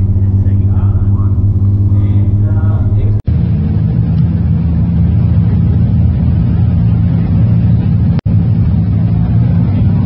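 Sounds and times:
car engine idling: 0:00.0 - 0:03.2.

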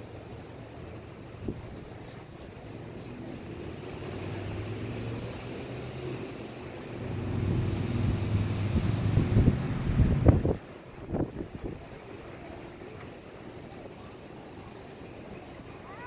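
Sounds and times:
motorboat engine droning: 0:00.0 - 0:16.0
wind buffeting microphone: 0:01.2 - 0:12.6.

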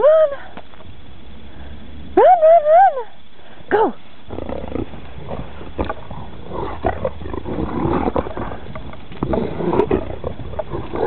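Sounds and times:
dog growling: 0:04.3 - 0:11.0.

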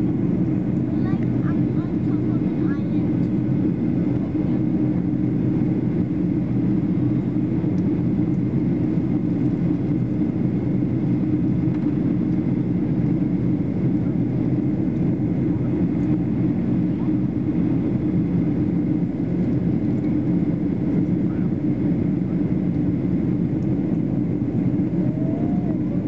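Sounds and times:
airliner cabin drone: 0:00.0 - 0:26.0.

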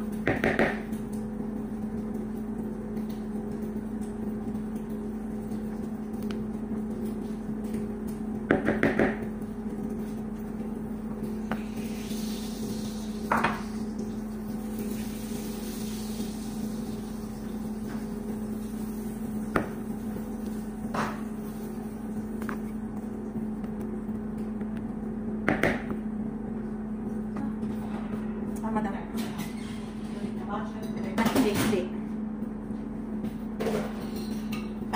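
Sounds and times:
low electrical hum: 0:00.0 - 0:34.9.

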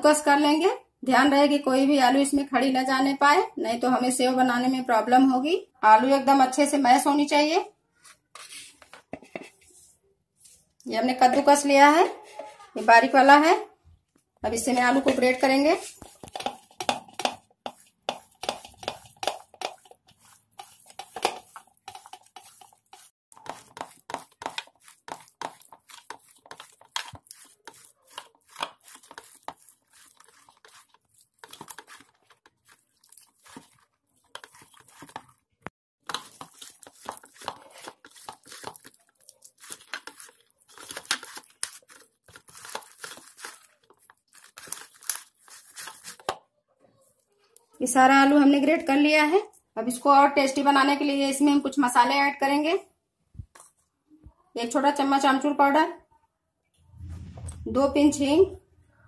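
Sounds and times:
potato rasping on metal grater: 0:15.8 - 0:35.4, 0:36.0 - 0:46.3.

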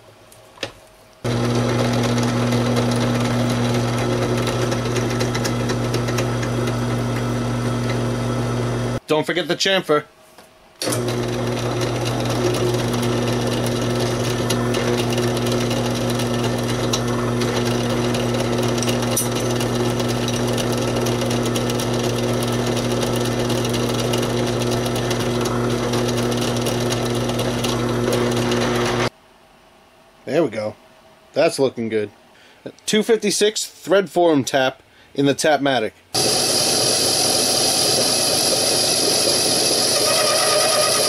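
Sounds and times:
drill press humming: 0:01.2 - 0:09.0, 0:10.8 - 0:29.1, 0:36.2 - 0:41.0.

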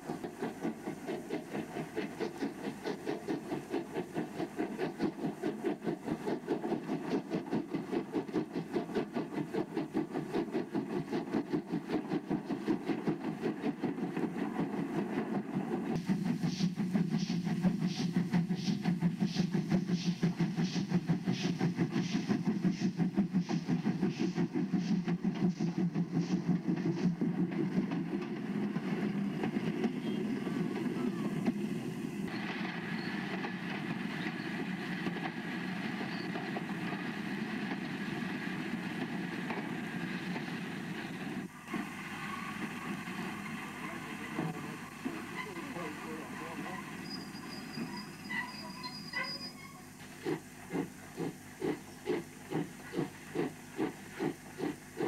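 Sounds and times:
steam locomotive exhaust beats: 0:00.0 - 0:55.0
train running noise: 0:00.0 - 0:55.0.

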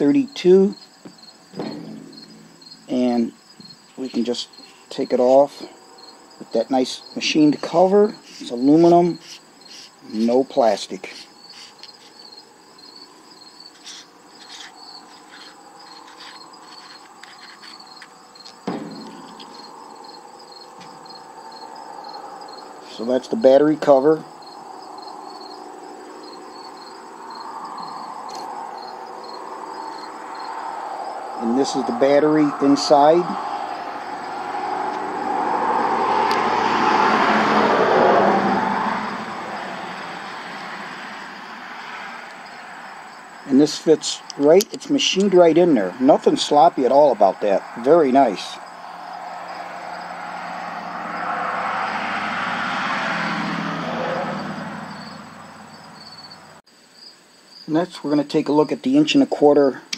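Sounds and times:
cricket chirping: 0:00.0 - 0:59.9
vehicle passing by: 0:13.8 - 0:44.2, 0:47.4 - 0:56.6.

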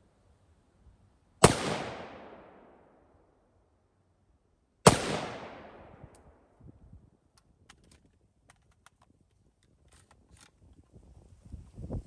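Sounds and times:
rifle shot echo: 0:01.4 - 0:03.0, 0:04.8 - 0:06.1.

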